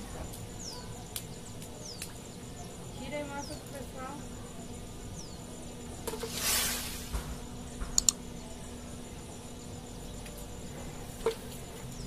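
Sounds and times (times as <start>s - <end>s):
sharp clicks: 7.9s - 8.2s.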